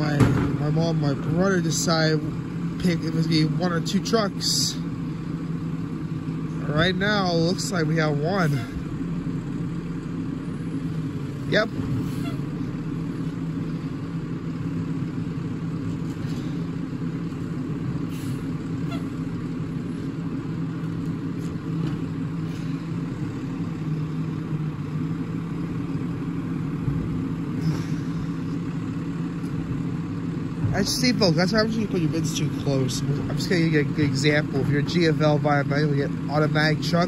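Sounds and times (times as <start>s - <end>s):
garbage truck engine drone: 0.0s - 37.0s.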